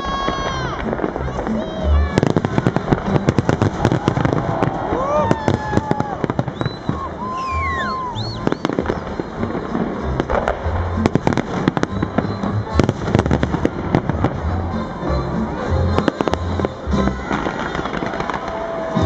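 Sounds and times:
fireworks whistles: 0:00.0 - 0:14.9, 0:15.9 - 0:19.0
fireworks bangs and crackling: 0:00.0 - 0:19.0
music with deep bass: 0:06.2 - 0:17.6.

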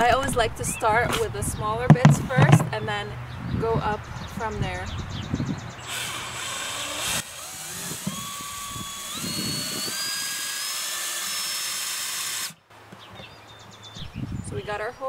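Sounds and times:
cordless drill whining: 0:05.8 - 0:12.6
drill bit hissing through plastic: 0:05.8 - 0:12.6.

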